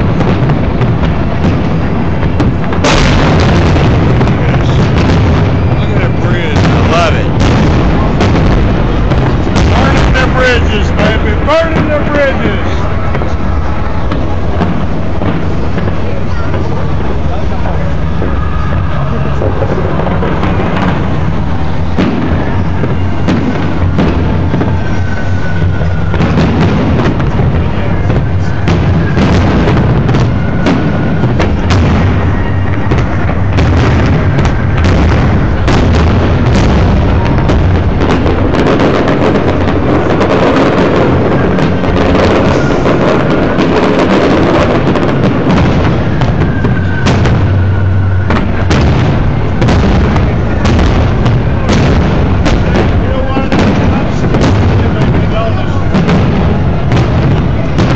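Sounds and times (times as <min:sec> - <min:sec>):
fireworks bursting: 0:00.0 - 0:57.9
low rumble: 0:00.0 - 0:57.9.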